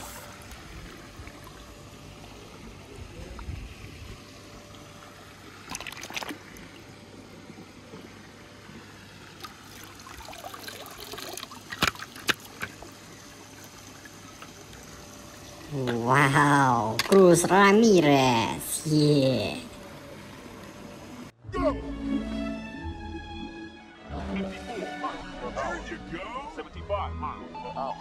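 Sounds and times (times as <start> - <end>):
trickling water: 0.0 - 21.3.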